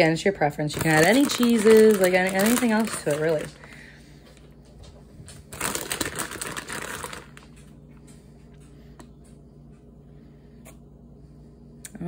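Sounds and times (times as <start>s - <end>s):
plastic bag crinkling: 0.6s - 4.5s, 5.2s - 7.8s.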